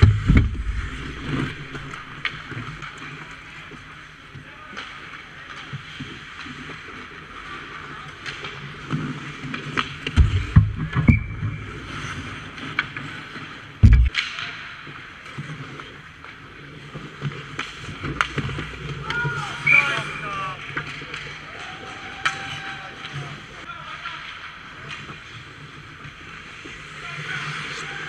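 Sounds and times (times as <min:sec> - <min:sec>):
heavy thumps: 0:00.0 - 0:02.3, 0:10.2 - 0:11.8, 0:13.8 - 0:14.1
skates scraping ice: 0:00.0 - 0:28.0
hockey stick clicks: 0:13.9 - 0:14.6, 0:17.4 - 0:19.2.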